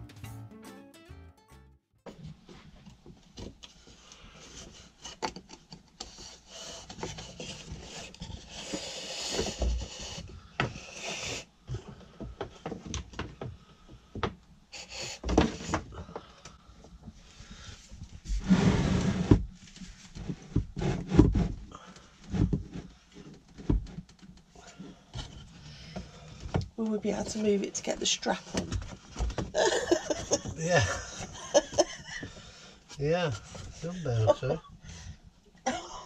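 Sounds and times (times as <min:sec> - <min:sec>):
irregular knocks and clatters: 0:19.3 - 0:32.5.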